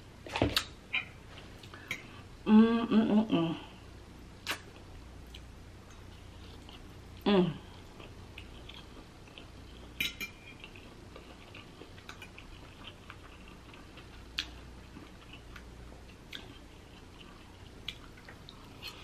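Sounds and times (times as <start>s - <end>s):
chewing with wet mouth clicks: 10.6s - 19.0s.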